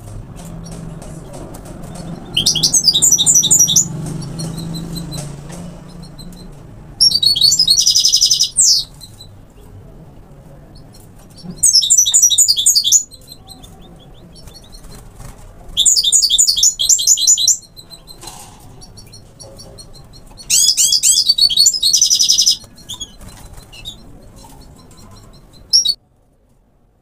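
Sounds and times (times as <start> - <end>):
finch twittering song: 0.5 - 9.5, 10.7 - 15.1, 15.7 - 26.0
bird call notes: 1.9 - 9.0, 11.4 - 14.8, 18.8 - 23.2, 23.8 - 26.0.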